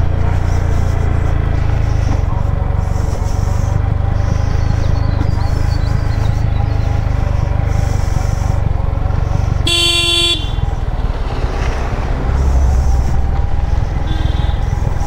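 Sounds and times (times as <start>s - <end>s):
motorcycle engine rumbling: 0.0s - 15.0s
vehicle horn honking: 9.6s - 10.8s, 14.0s - 14.7s.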